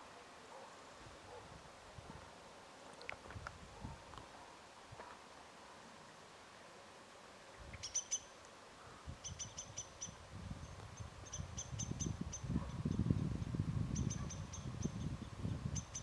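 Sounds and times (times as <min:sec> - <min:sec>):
small bird chirping: 0:07.6 - 0:08.4, 0:09.2 - 0:16.0.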